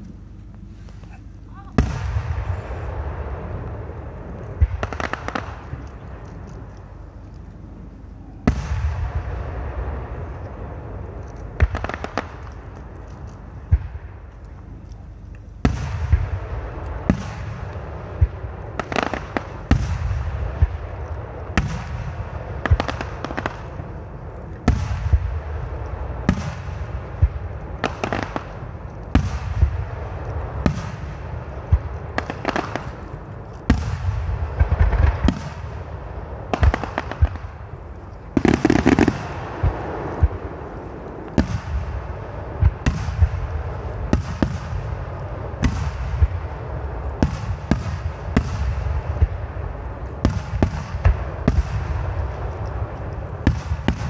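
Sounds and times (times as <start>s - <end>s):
continuous low rumble: 0.0s - 54.0s
firework shells bursting with echo: 0.0s - 54.0s.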